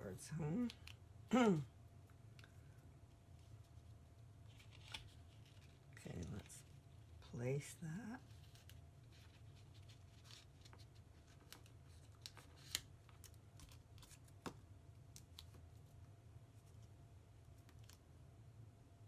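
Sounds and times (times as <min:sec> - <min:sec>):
low room hum: 0:00.0 - 0:19.0
paper handling: 0:04.5 - 0:06.7, 0:08.2 - 0:15.8.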